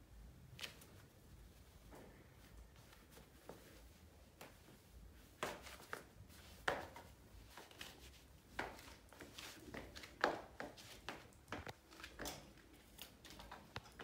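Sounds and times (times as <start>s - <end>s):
sandals tapping on tiled floor: 5.3s - 14.0s.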